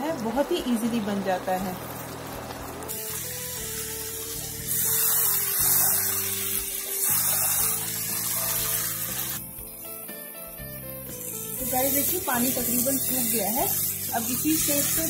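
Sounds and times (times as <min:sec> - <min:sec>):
background music: 0:00.0 - 0:15.0
hissing sizzle of food cooking: 0:00.3 - 0:15.0.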